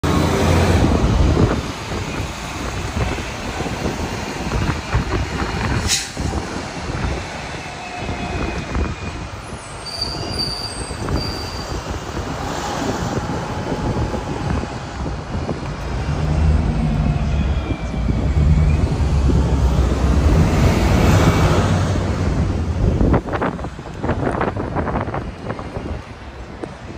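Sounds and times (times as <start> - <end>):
bus engine rumble: 0.0 - 26.9
road noise: 0.0 - 26.9
faint squeals: 7.6 - 11.9.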